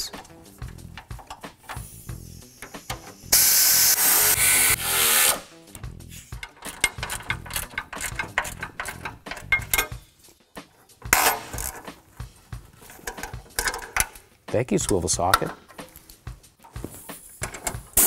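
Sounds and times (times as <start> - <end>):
air ratchet running: 0.6 - 5.4, 6.1 - 9.9
air hissing: 1.6 - 4.0, 6.0 - 6.4
ratchet clicks: 6.3 - 9.9.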